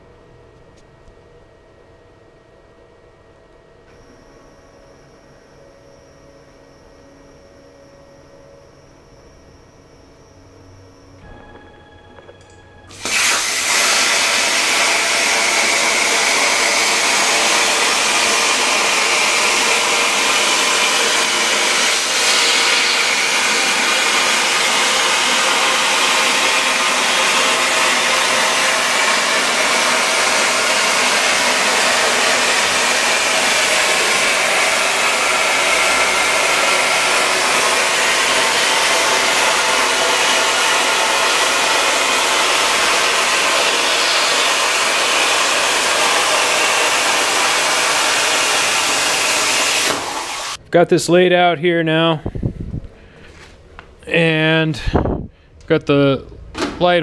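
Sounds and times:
plasma cutter hissing: 0:12.9 - 0:50.6.

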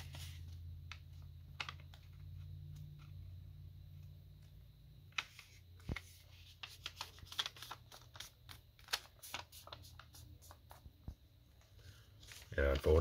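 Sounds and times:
paper rustling and crackling: 0:00.0 - 0:02.3, 0:05.1 - 0:10.8, 0:12.1 - 0:13.0.

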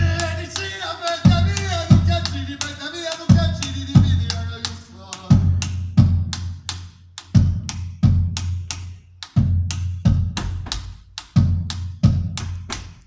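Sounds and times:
man singing: 0:00.0 - 0:05.8
drumstick clicks: 0:00.2 - 0:13.0.

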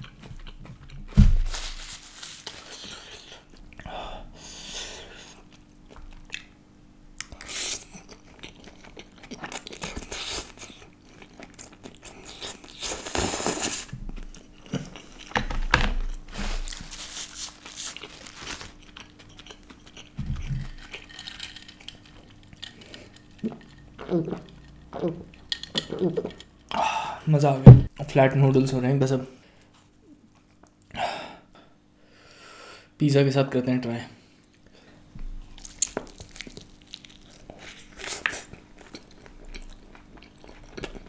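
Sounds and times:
chewing noodles: 0:17.7 - 0:26.4, 0:35.5 - 0:41.0.

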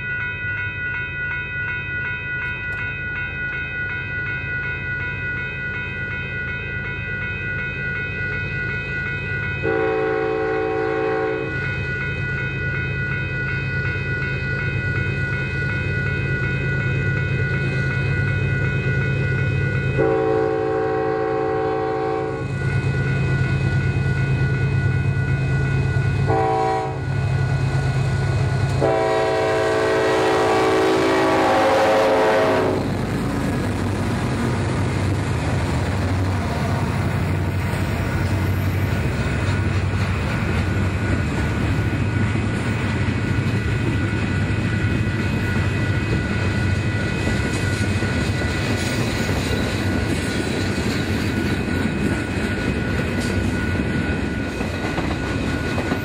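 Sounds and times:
train droning: 0:00.0 - 0:56.0
high whine: 0:06.4 - 0:56.0
locomotive horn blasts: 0:09.6 - 0:11.5, 0:20.0 - 0:22.5, 0:26.3 - 0:27.0, 0:28.8 - 0:33.0.

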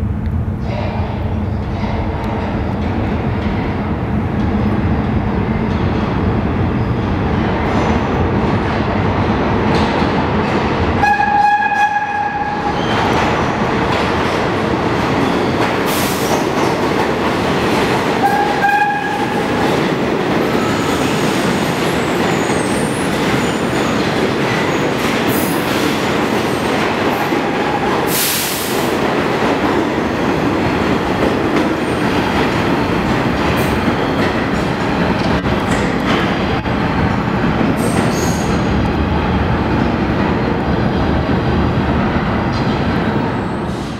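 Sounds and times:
train wheels rumbling and clattering: 0:00.0 - 0:43.9
train horn blasts: 0:11.0 - 0:12.7, 0:18.2 - 0:19.5.

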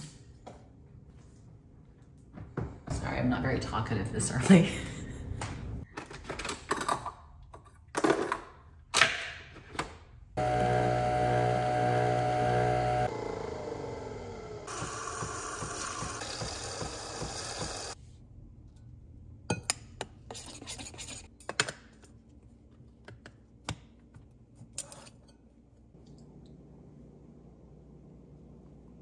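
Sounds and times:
milk frother hissing: 0:10.4 - 0:18.0.

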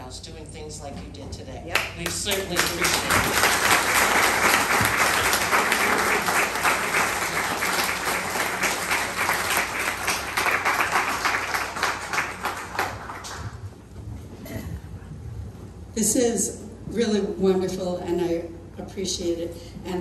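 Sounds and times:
audience applauding: 0:01.7 - 0:13.8.

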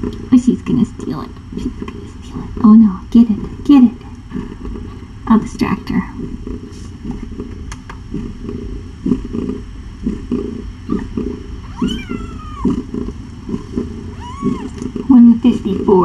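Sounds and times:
kitten crying: 0:11.6 - 0:12.8, 0:14.2 - 0:14.8.

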